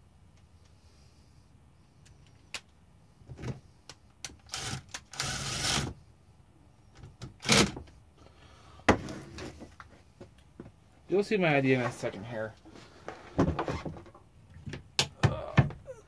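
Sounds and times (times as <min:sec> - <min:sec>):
cordless drill running: 0:04.5 - 0:05.9.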